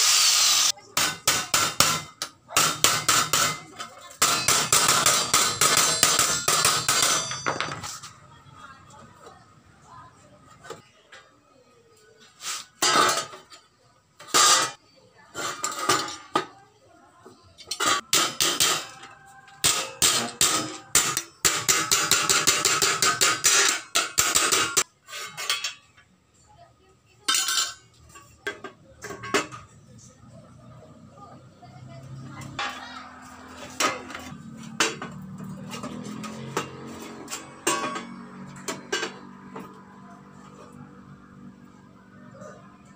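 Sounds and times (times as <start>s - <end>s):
hammer clanking on steel sheet: 0.7s - 7.9s, 17.7s - 25.9s.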